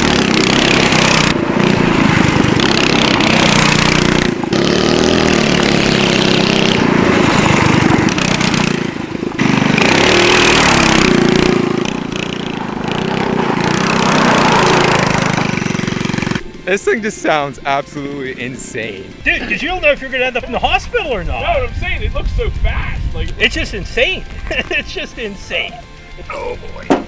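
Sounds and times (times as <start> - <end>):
go-kart engine revving: 0.0 - 16.6.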